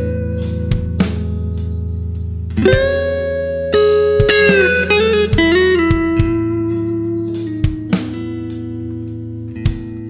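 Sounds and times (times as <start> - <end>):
electric guitar lead line: 0.0 - 10.0
low backing music: 0.0 - 10.0
kick drum: 2.6 - 3.1, 4.2 - 6.6, 7.6 - 7.9.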